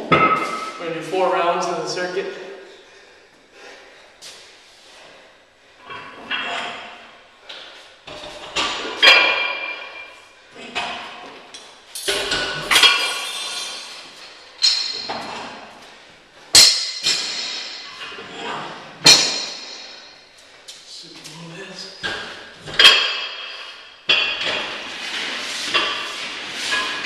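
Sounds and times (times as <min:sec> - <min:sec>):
metal weight plates clanking: 0:05.8 - 0:07.1, 0:08.1 - 0:11.3, 0:12.0 - 0:15.7, 0:16.6 - 0:20.1, 0:22.0 - 0:27.0.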